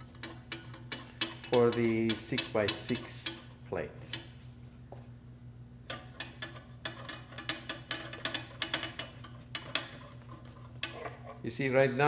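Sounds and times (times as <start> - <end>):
metal rods clinking on metal plate: 0.2 - 3.4, 5.9 - 11.2.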